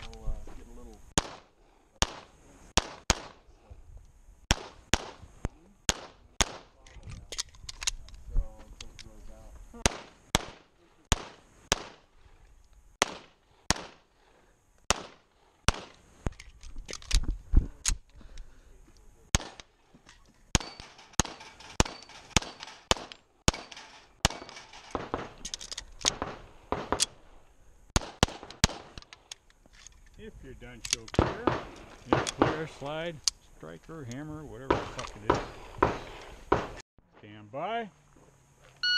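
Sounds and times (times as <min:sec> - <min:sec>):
rapid pistol fire: 0:01.2 - 0:03.5, 0:04.5 - 0:05.2, 0:05.9 - 0:06.7, 0:09.8 - 0:12.1, 0:13.0 - 0:14.1, 0:14.9 - 0:16.0, 0:19.3 - 0:19.7, 0:20.5 - 0:25.4, 0:26.0 - 0:27.2, 0:28.0 - 0:29.0, 0:31.2 - 0:32.7, 0:34.7 - 0:36.8.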